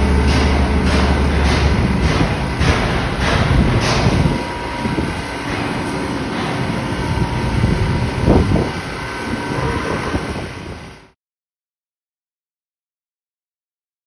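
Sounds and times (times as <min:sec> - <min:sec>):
construction machinery rumble: 0:00.0 - 0:11.2.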